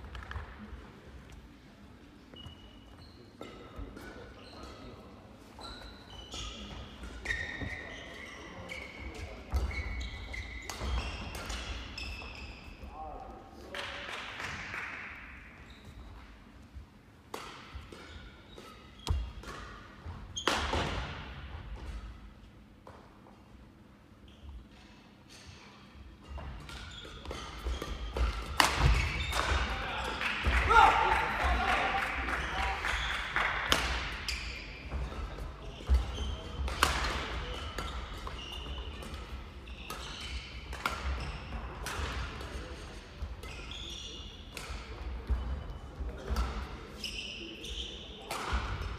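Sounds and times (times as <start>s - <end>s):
shoes squeaking on court: 2.0s - 12.9s, 15.6s - 16.5s, 17.7s - 21.1s, 24.2s - 30.1s, 34.1s - 41.6s, 42.6s - 48.9s
racket hitting shuttlecock: 17.3s - 22.0s, 26.4s - 29.7s, 33.7s - 34.3s, 34.9s - 43.5s.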